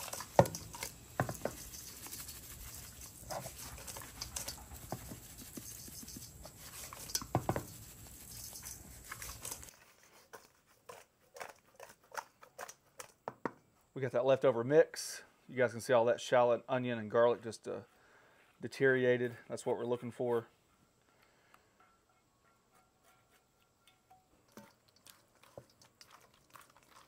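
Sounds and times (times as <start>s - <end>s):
seasoning shaker shaken: 0.0s - 13.1s, 24.5s - 27.0s
wet shrimp tossed in metal bowl: 0.0s - 13.2s, 24.4s - 27.0s.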